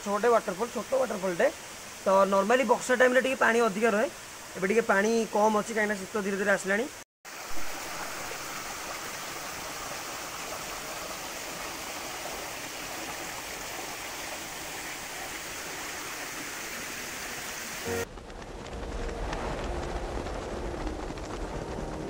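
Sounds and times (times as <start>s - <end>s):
small waterfall rushing: 0.0s - 18.0s.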